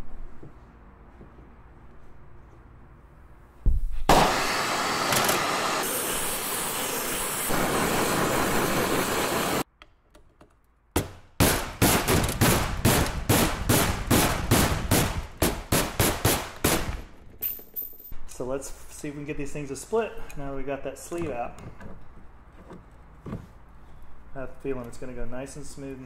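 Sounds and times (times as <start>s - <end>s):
gas torch flame hissing: 4.1s - 9.7s.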